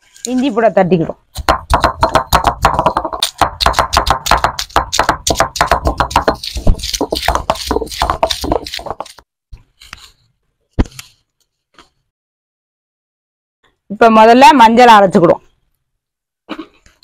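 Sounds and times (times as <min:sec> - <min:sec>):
stone roller knocking on stone slab: 0:01.4 - 0:09.2.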